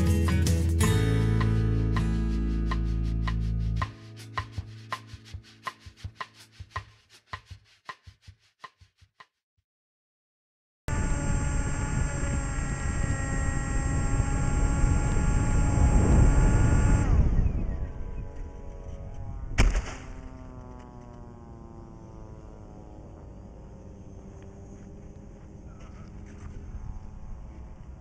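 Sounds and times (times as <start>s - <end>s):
electric motor propeller whining: 10.9s - 28.0s.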